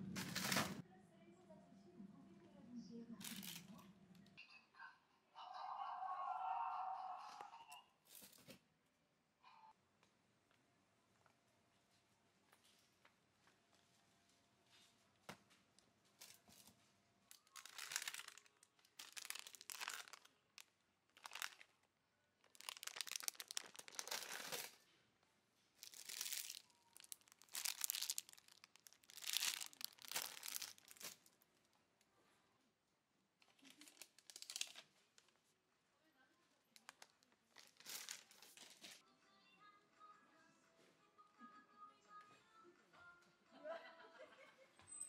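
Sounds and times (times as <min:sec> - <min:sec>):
plastic packaging crinkling: 0:00.2 - 0:00.8, 0:03.2 - 0:03.8, 0:17.3 - 0:24.8, 0:25.8 - 0:31.5, 0:33.4 - 0:35.4, 0:36.7 - 0:39.0.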